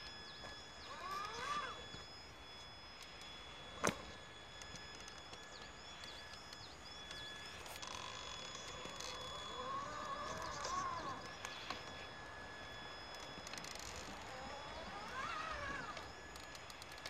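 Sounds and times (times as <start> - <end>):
electric motor whining: 0.0 - 17.0.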